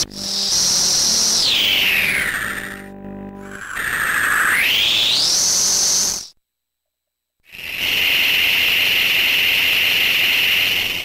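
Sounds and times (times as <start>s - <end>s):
toy chainsaw hissing buzz: 0.0s - 2.8s, 7.5s - 11.0s.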